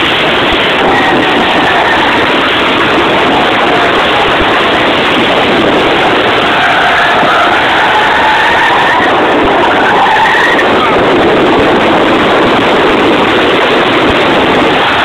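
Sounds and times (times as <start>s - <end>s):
rotary engine running hard: 0.0s - 15.0s
tyres squealing: 0.5s - 11.2s.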